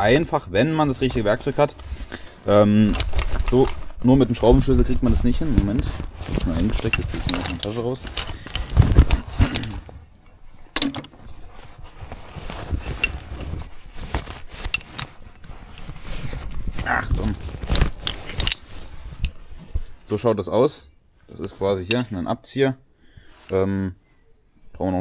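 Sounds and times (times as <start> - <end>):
rustling: 0.0 - 22.3
metallic clinks: 10.8 - 11.1, 21.9 - 22.1.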